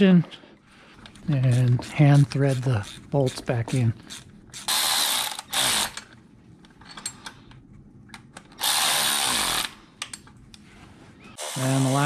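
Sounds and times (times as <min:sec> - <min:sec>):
cordless electric ratchet running: 0:04.0 - 0:06.0, 0:08.6 - 0:09.8, 0:11.4 - 0:12.0.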